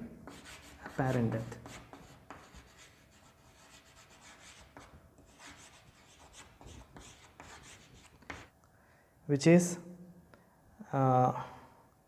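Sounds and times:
chalk scratching on a chalkboard: 0:00.3 - 0:08.5.

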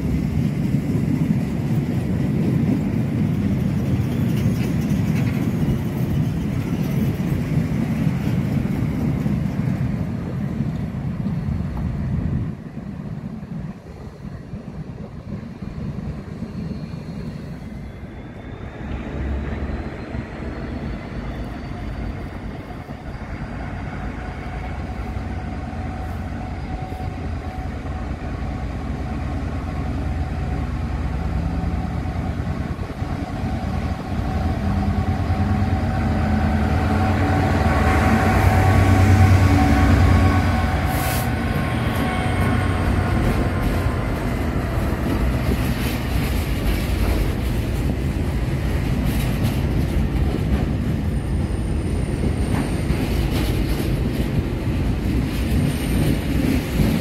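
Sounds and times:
diesel locomotive engine: 0:00.0 - 0:57.0
freight wagons rolling past: 0:01.5 - 0:11.3.

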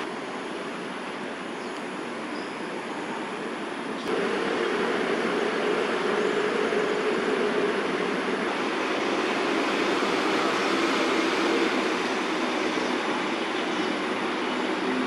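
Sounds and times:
distant city traffic: 0:00.0 - 0:15.0
faint low drone: 0:04.0 - 0:12.3.

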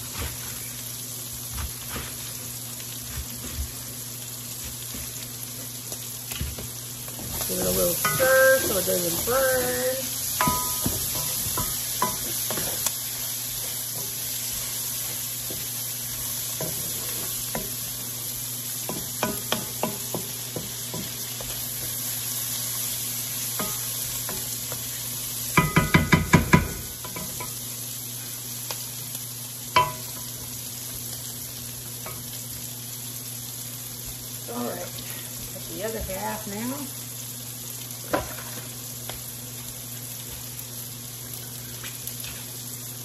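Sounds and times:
food sizzling in a pan: 0:00.0 - 0:43.0
spoon knocking on a pan: 0:08.0 - 0:09.7, 0:10.4 - 0:12.8, 0:18.9 - 0:21.5, 0:25.6 - 0:27.6, 0:29.8 - 0:30.3
wooden spoon scraping a pan: 0:38.1 - 0:38.8.

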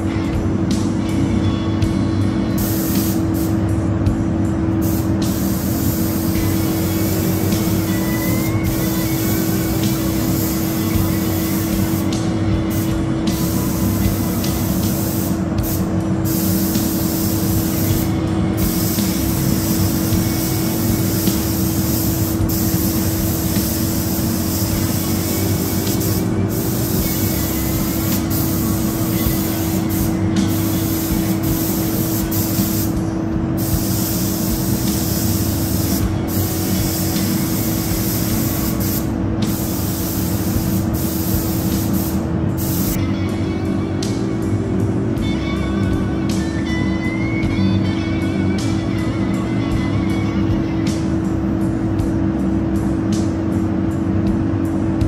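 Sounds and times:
steady low hum: 0:00.0 - 0:55.0
paint spray gun hissing: 0:02.5 - 0:03.7, 0:04.8 - 0:33.0, 0:33.6 - 0:43.0.

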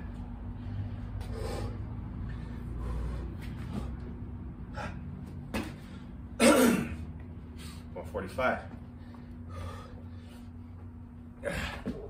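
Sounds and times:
man breathing hard: 0:00.4 - 0:06.3, 0:08.9 - 0:12.0
man exhaling with effort: 0:04.7 - 0:05.1, 0:11.4 - 0:12.0.

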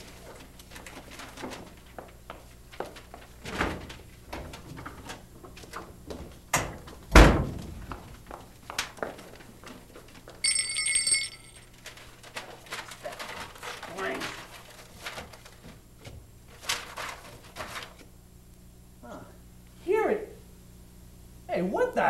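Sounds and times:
bell-like ring: 0:10.4 - 0:11.7.

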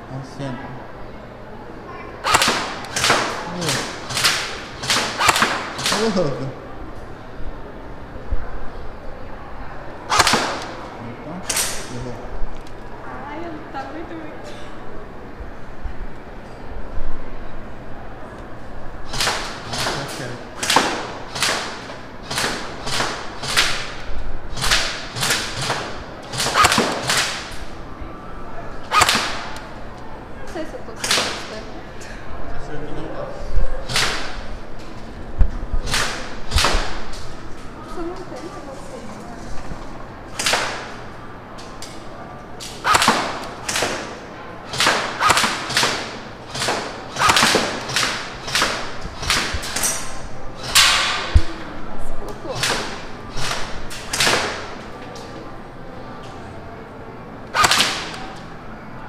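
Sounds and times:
airsoft gun single shots: 0:02.2 - 0:06.0, 0:10.1 - 0:10.7, 0:24.6 - 0:27.5, 0:28.9 - 0:29.6, 0:42.8 - 0:44.1, 0:44.7 - 0:49.8, 0:57.5 - 0:58.2
airsoft rifle firing single shots: 0:02.2 - 0:06.0, 0:24.6 - 0:27.4, 0:57.6 - 0:58.2.

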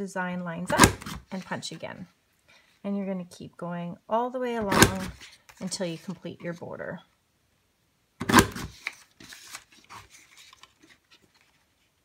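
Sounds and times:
paper punch snapping: 0:00.7 - 0:01.2, 0:04.7 - 0:05.2, 0:08.2 - 0:08.8
paper rustling: 0:08.3 - 0:12.0.

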